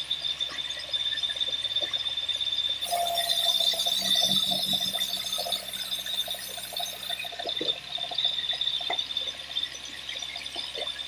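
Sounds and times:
band saw blade whine: 0:02.8 - 0:07.6.

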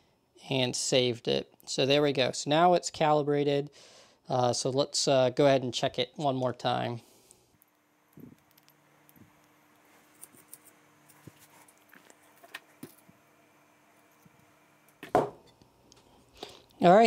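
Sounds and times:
faint steady hum: 0:00.0 - 0:17.0
thump: 0:15.0 - 0:15.4.

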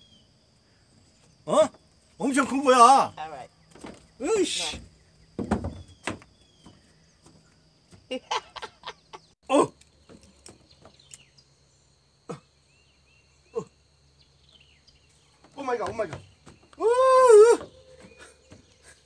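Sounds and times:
knocks on wooden dock boards: 0:04.7 - 0:08.0, 0:15.4 - 0:16.7
faint bird chirps: 0:17.6 - 0:19.0.

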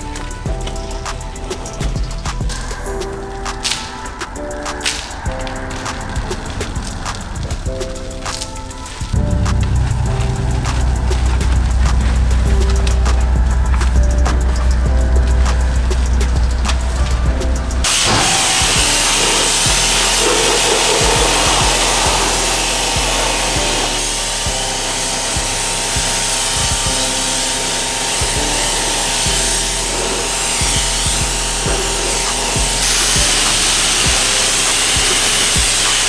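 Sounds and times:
music: 0:00.0 - 0:36.0
power tool running: 0:17.8 - 0:36.0.

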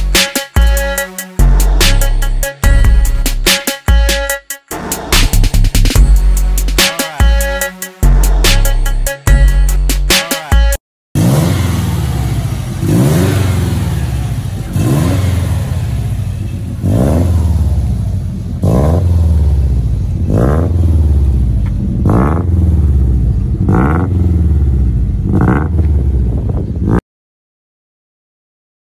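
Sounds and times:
car engine revving: 0:04.7 - 0:07.0, 0:11.2 - 0:27.0.

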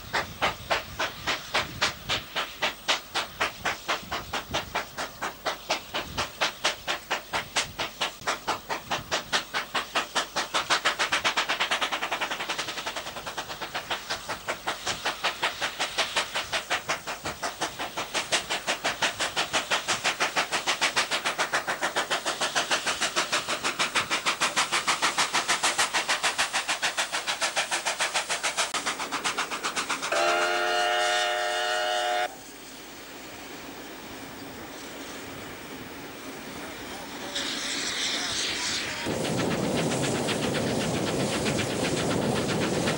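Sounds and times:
steam locomotive exhaust beating: 0:00.0 - 0:42.9
steam whistle blast: 0:30.1 - 0:32.4.

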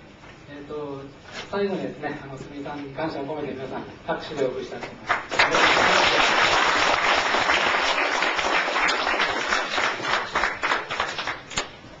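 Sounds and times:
audience applauding: 0:05.1 - 0:11.5.

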